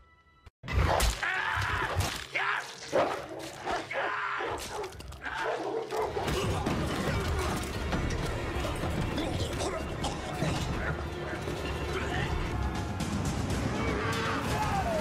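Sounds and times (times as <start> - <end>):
hounds snarling and savaging: 2.8 - 7.7.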